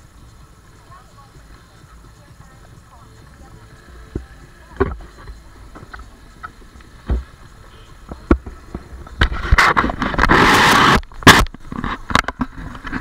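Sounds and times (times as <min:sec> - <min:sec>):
rubbing on microphone: 0:08.7 - 0:13.0.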